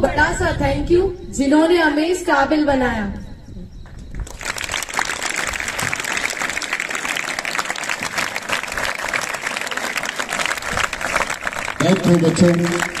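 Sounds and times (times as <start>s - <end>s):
crowd of children applauding: 4.2s - 13.0s.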